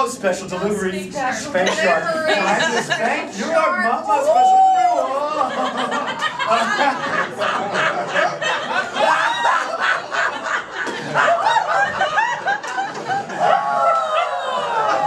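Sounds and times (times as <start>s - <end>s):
audience laughing: 2.3s - 3.2s, 5.1s - 15.0s.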